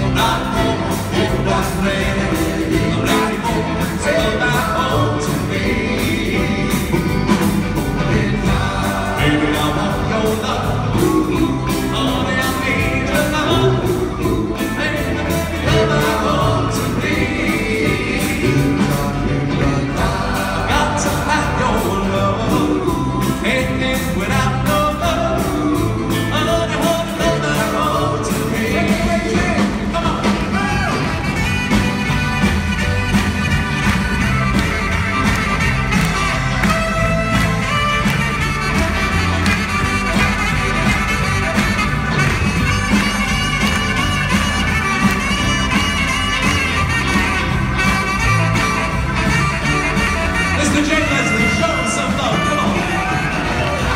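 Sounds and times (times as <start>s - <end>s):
vocal group singing in harmony: 0.0s - 31.0s
band playing: 0.0s - 53.9s.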